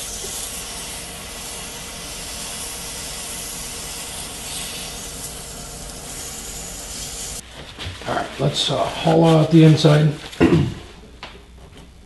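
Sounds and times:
wood lathe running: 0.0s - 7.4s
hands rubbing spinning wood: 0.0s - 10.4s.

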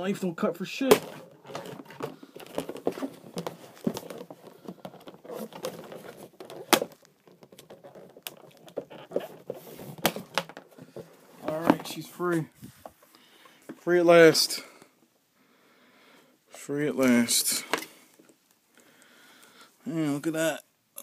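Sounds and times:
rustling packaging: 0.7s - 13.1s.

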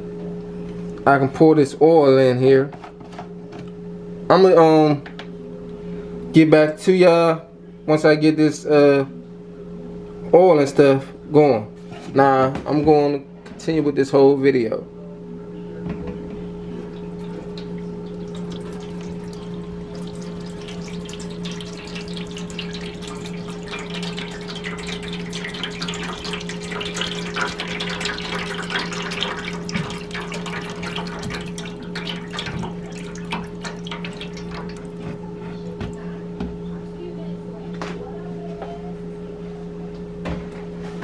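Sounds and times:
steady low hum: 14.6s - 40.8s
deep fryer crackling and sizzling: 16.7s - 35.3s.

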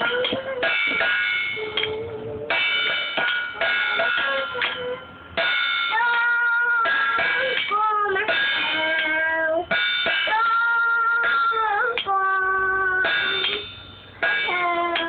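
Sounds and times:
girl singing: 5.8s - 13.7s, 14.3s - 15.0s.

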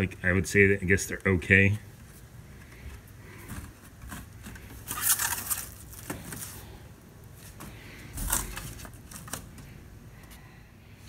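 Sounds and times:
plastic wrap crinkling and tearing: 3.4s - 7.6s, 8.2s - 9.7s.

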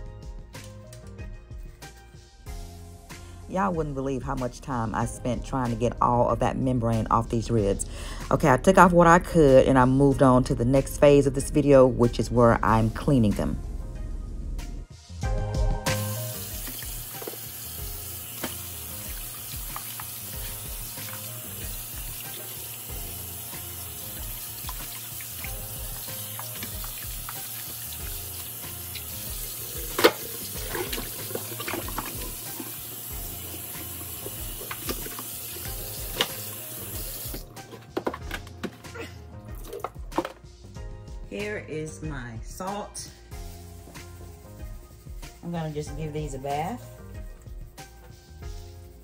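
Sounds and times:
faucet running into metal sink: 16.0s - 37.5s.

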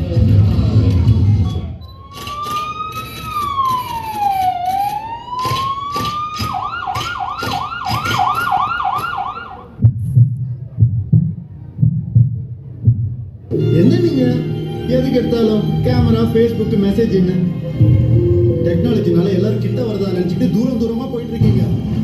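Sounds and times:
police siren sound effect: 1.8s - 9.8s
low pulsing beat: 6.5s - 15.0s, 17.6s - 20.7s.

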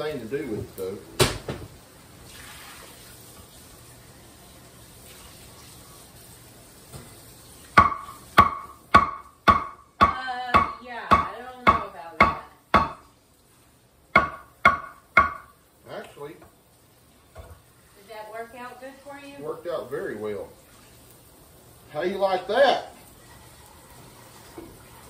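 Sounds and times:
knife chopping meat on wooden board: 7.8s - 13.0s, 14.2s - 15.5s.

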